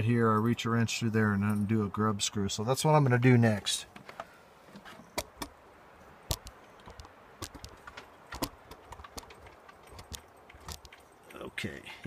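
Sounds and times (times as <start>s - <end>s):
sharp knocks: 6.3s - 11.1s
light handling clicks and taps: 6.3s - 11.7s.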